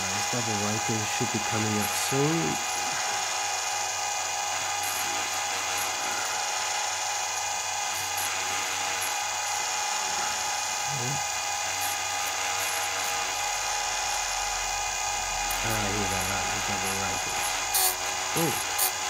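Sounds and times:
chain sharpener motor whine: 0.0s - 19.0s.

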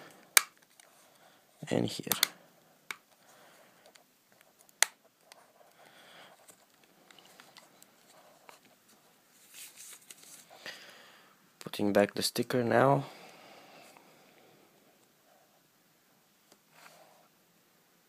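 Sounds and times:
plastic case snapping click: 2.1s - 2.3s.

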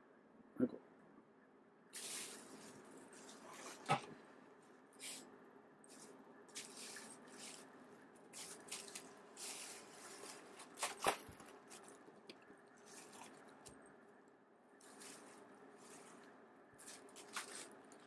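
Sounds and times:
bubble wrap crinkling: 2.0s - 4.1s, 5.9s - 13.7s, 14.8s - 18.0s.

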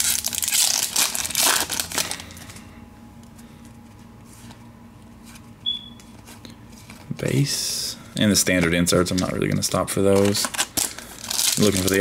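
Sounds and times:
card pack wrapper crinkling: 0.0s - 2.6s, 8.5s - 12.0s.

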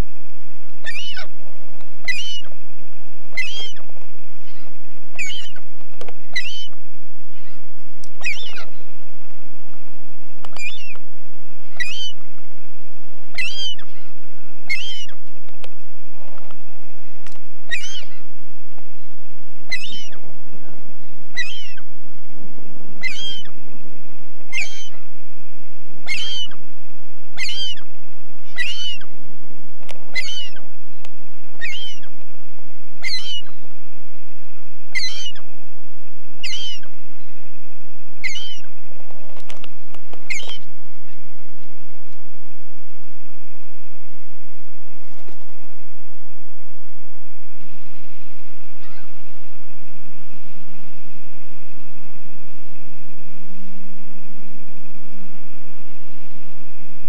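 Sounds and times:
bird high-pitched call: 0.8s - 1.4s, 2.0s - 2.6s, 3.3s - 8.9s, 10.5s - 11.0s, 11.6s - 12.2s, 13.3s - 15.2s, 17.7s - 18.3s, 19.7s - 20.2s, 21.0s - 21.9s, 23.0s - 23.6s, 24.5s - 25.1s, 26.0s - 26.6s, 27.4s - 29.1s, 30.1s - 30.7s, 31.6s - 32.1s, 33.0s - 33.7s, 34.9s - 35.5s, 36.4s - 37.4s, 38.2s - 38.7s, 40.2s - 41.2s, 48.8s - 49.2s.

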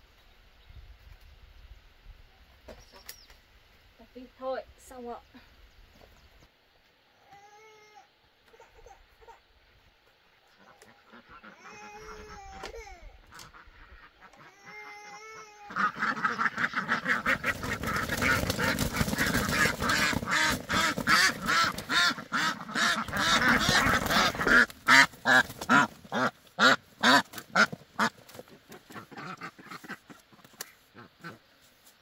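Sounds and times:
ducks quacking: 10.5s - 31.7s.

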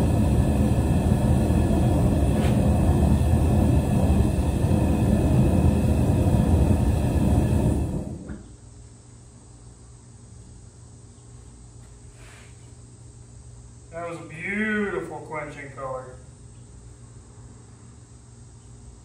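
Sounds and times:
propane torch rumbling: 0.0s - 8.7s, 12.0s - 18.3s.

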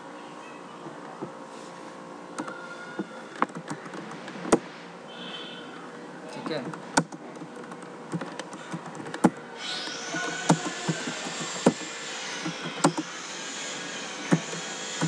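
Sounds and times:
computer keyboard typing: 7.0s - 9.4s, 10.2s - 13.1s.

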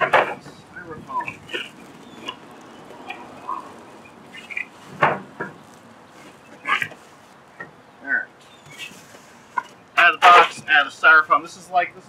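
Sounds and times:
styrofoam squeaking and scraping: 1.2s - 7.4s, 8.6s - 10.7s.

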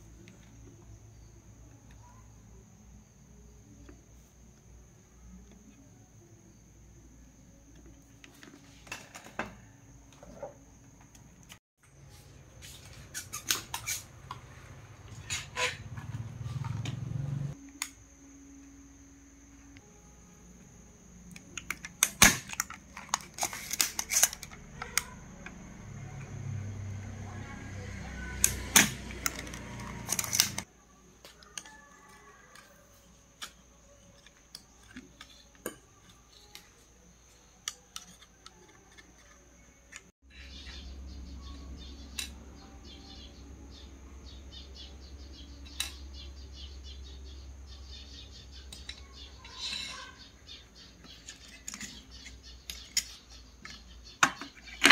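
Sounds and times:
desoldering pump snapping: 21.3s - 25.1s, 28.4s - 30.7s.

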